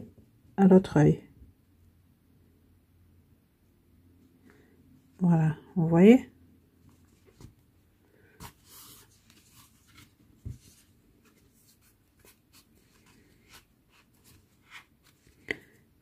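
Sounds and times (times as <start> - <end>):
crochet needle and yarn rustling: 5.1 - 15.9.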